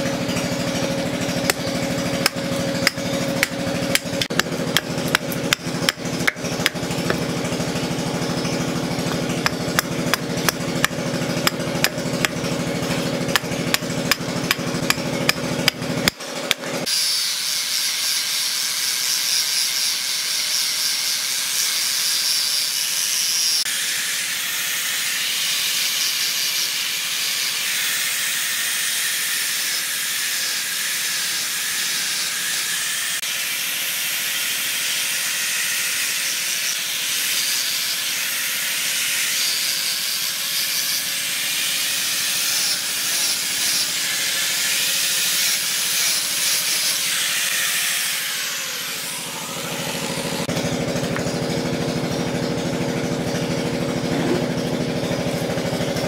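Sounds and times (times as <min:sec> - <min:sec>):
angle grinder sanding wood: 0:00.0 - 0:56.0
hatchet chopping wood: 0:00.2 - 0:16.9.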